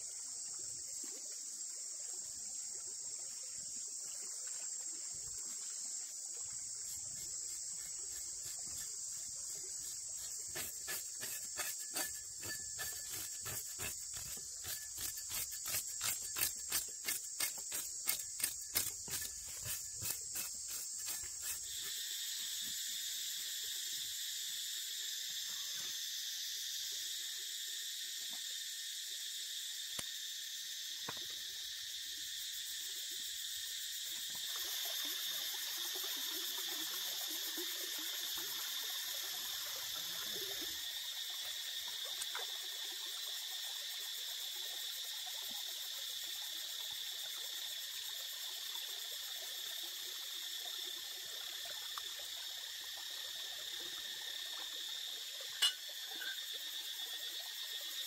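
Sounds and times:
insects chorus: 0.0s - 58.0s
knife scraping scales: 7.2s - 21.9s, 55.6s - 56.4s.

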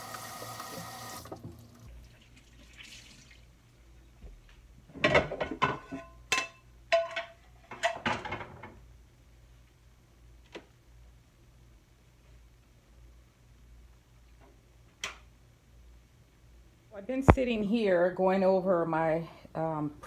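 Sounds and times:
pots and pans clattering: 5.0s - 8.8s.

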